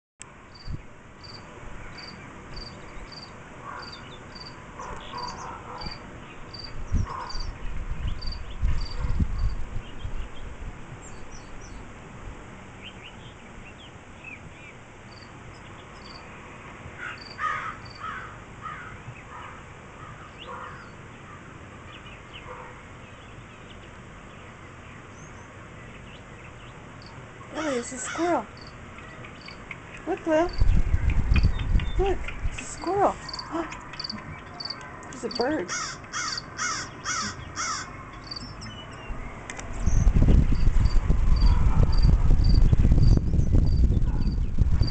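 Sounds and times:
insect chirping: 0.5 - 7.6, 8.2 - 9.6, 15.1 - 16.3, 17.1 - 18.1, 27.0 - 27.8, 28.5 - 29.6, 33.2 - 39.0
bird calls: 0.5 - 11.8, 17.0 - 40.1.

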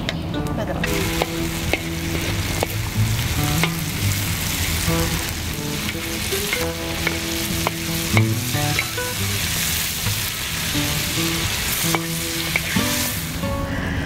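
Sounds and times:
food sizzling in a pan: 0.8 - 13.6
utensil clinking against pan: 5.7 - 9.2.

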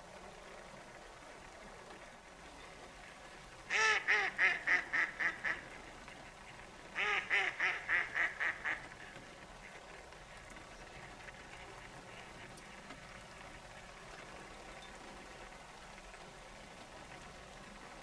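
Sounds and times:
light rain on water: 0.0 - 18.0
duck quacking: 3.7 - 5.7, 7.0 - 8.9.

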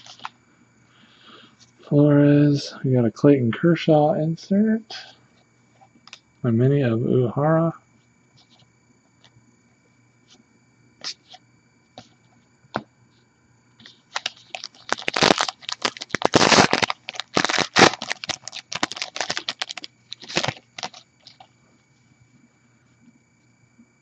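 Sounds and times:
wrapper tearing and crinkling: 0.0 - 0.3, 14.1 - 21.4.

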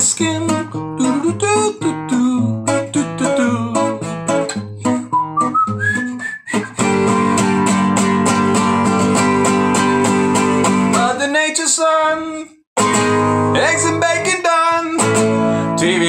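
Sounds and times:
person singing: 0.0 - 4.2, 13.5 - 16.0
acoustic guitar strumming: 0.0 - 11.7, 12.8 - 16.0.

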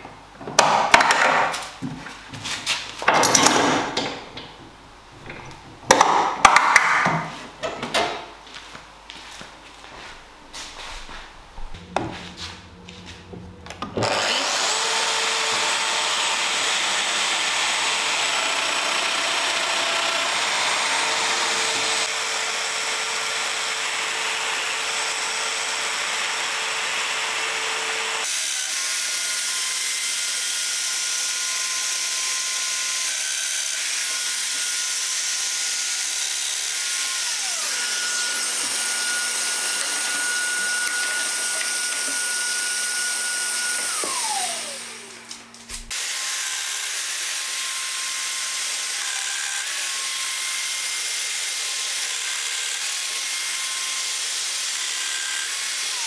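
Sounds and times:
dust extractor: 11.8 - 56.0
power tool motor running: 13.8 - 56.0.

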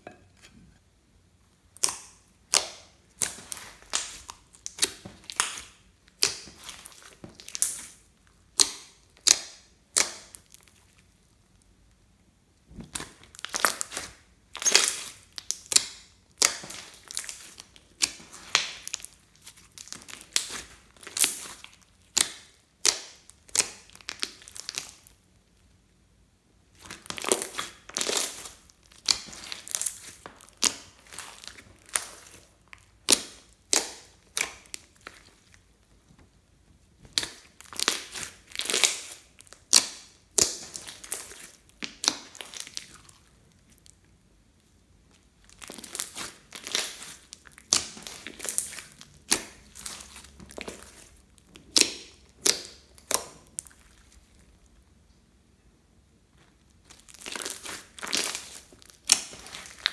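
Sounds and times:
sticky slime crackling pops: 1.8 - 10.7, 37.0 - 43.0, 45.5 - 54.2, 56.8 - 59.9.

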